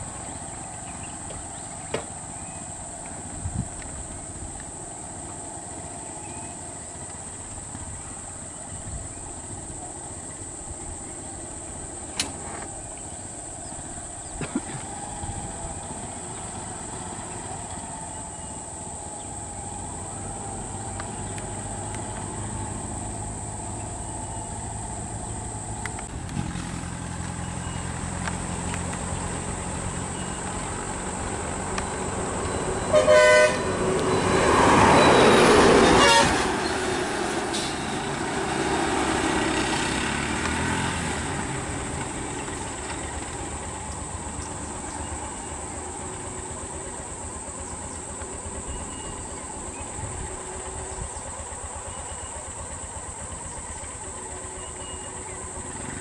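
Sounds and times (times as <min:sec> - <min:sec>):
rushing surge of engine noise: 0:00.0 - 0:56.0
vehicle engines idling: 0:00.0 - 0:56.0
horn blast: 0:32.6 - 0:39.1.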